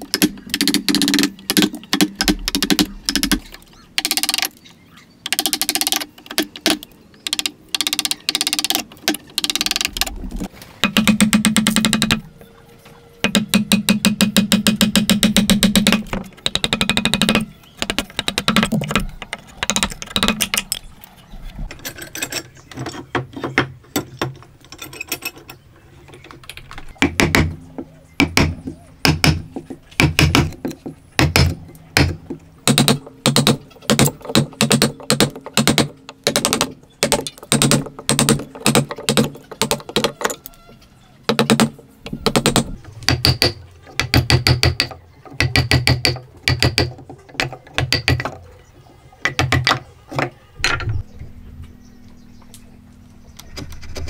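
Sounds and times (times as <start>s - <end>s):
chisel struck into wood: 28.2s - 30.6s, 31.2s - 39.8s.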